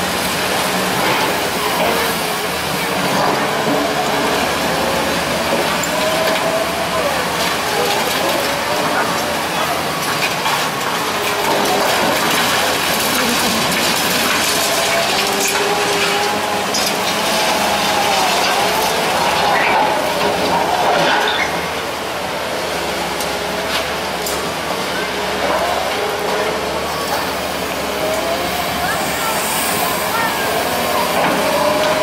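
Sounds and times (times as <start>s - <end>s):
diesel engines running: 0.0s - 32.0s
rubble scraping and clattering: 9.8s - 21.6s.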